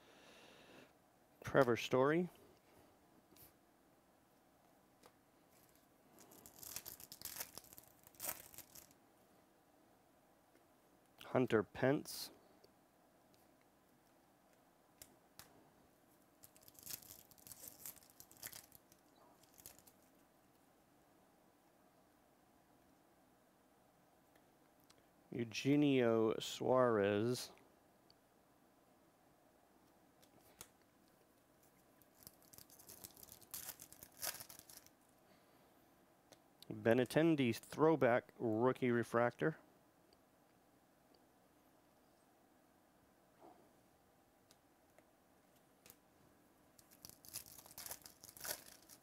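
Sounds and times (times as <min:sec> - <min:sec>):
foil wrapper tearing and crinkling: 0:06.2 - 0:09.0, 0:16.4 - 0:20.1, 0:32.0 - 0:34.9, 0:46.8 - 0:49.0.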